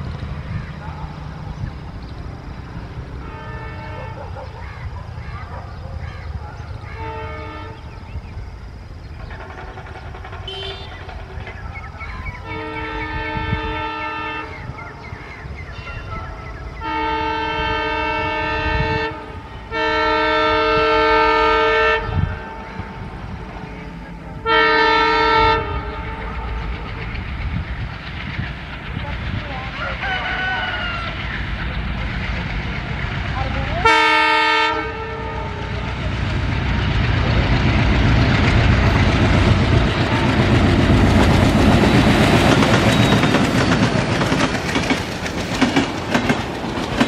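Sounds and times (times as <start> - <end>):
train air horn blasts: 3.2 - 4.4, 6.9 - 7.9, 9.2 - 11.6, 12.4 - 14.8, 16.8 - 23.0, 24.4 - 26.5, 33.8 - 35.8.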